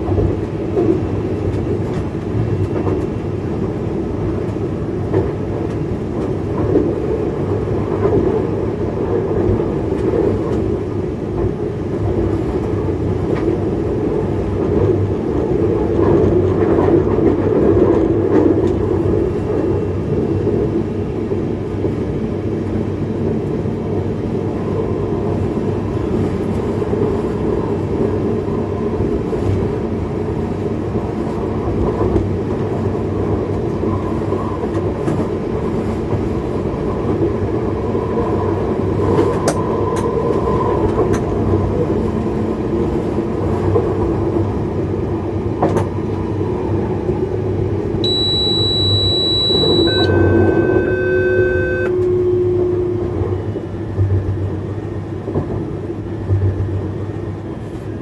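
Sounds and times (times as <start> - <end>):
train wheels rumbling on rail: 0.0 - 58.0
electronic tones stepping down: 48.1 - 53.2.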